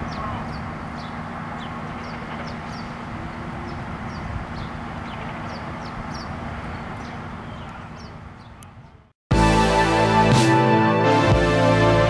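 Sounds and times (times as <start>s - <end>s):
small birds chirping: 0.0s - 9.2s.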